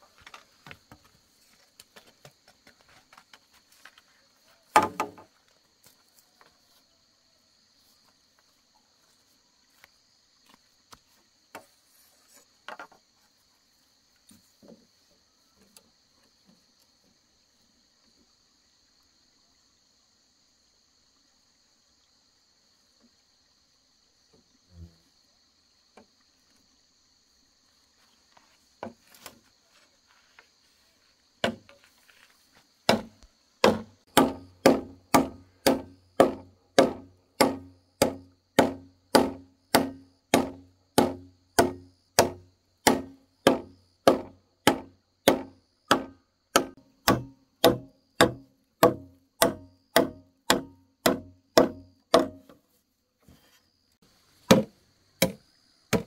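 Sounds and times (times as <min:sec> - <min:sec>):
chopping blows on wood: 0:04.7 - 0:05.2, 0:31.4 - 0:31.7, 0:32.9 - 0:52.6, 0:54.5 - 0:56.0.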